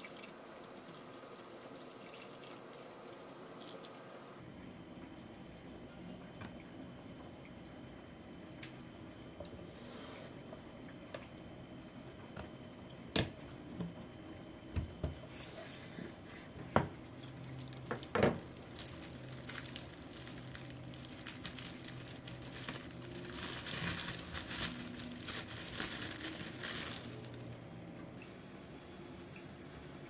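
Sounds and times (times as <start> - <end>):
plastic bread bag crinkling: 17.2 - 27.6.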